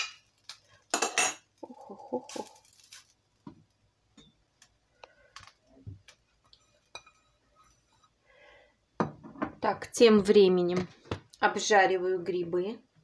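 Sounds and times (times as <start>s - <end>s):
cookware clicking and knocking: 0.9s - 1.5s
metal utensil scraping a pan: 6.5s - 8.2s.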